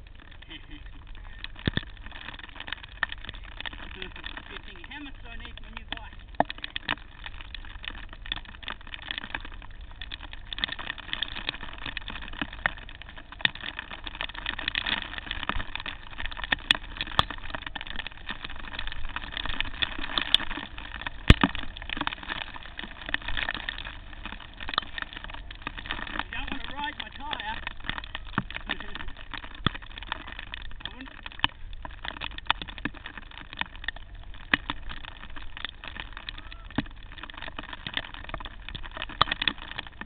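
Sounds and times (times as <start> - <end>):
bike tyres rolling over dirt: 0.0 - 40.0.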